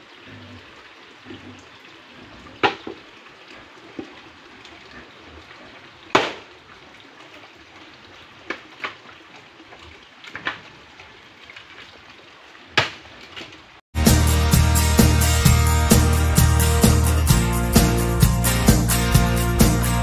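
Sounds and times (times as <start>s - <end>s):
loud music with steady beat: 14.0s - 20.0s.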